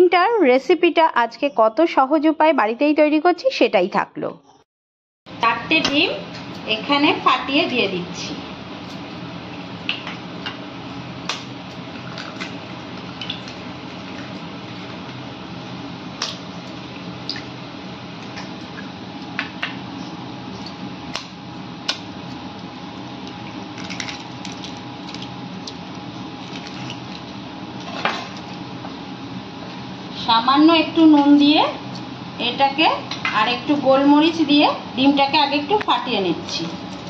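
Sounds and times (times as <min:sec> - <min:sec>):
steady background hum: 0:00.0 - 0:04.6, 0:05.3 - 0:37.0
egg shells cracking: 0:23.2 - 0:27.3.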